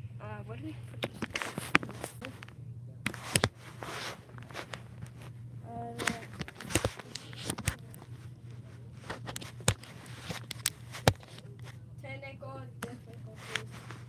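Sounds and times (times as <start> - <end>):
steady low hum: 0.0 - 14.0
phone being handled: 1.0 - 11.8, 12.8 - 14.0.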